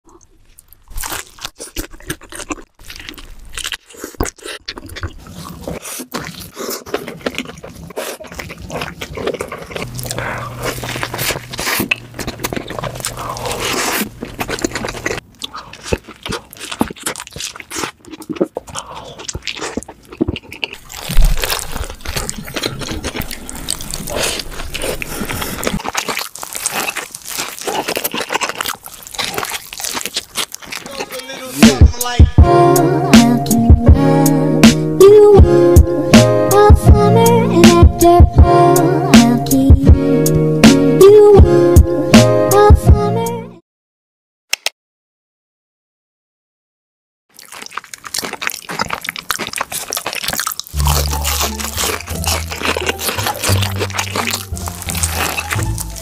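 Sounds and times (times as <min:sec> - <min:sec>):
wet chewing: 0:00.1 - 0:42.0, 0:47.3 - 0:56.0
crunchy bites into food: 0:00.2 - 0:32.2, 0:47.3 - 0:56.0.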